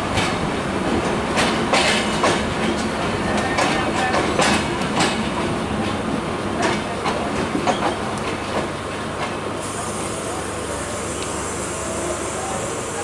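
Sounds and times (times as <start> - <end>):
train wheels clattering over rail joints: 0.1 - 9.4.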